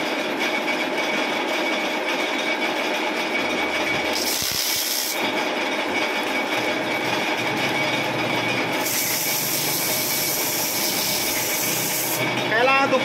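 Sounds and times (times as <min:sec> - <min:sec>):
lathe running with thin whine: 0:01.4 - 0:13.0
sandpaper hissing on spinning metal: 0:04.1 - 0:05.2, 0:08.8 - 0:12.2.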